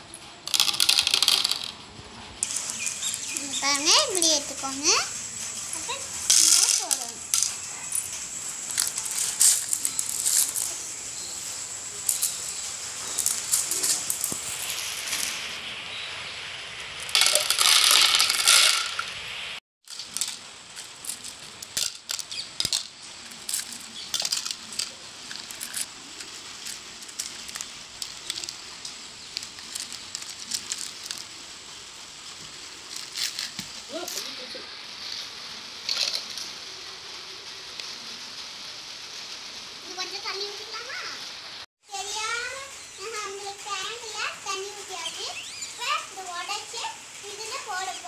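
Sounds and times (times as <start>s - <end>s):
pebbles clicking in glass tank: 0.5s - 1.8s, 13.1s - 15.3s, 17.1s - 19.2s, 19.9s - 31.4s.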